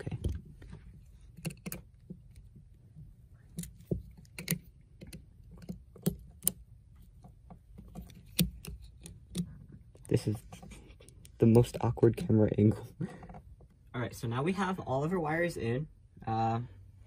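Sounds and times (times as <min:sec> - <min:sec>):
small metallic clicks: 0:03.4 - 0:10.3.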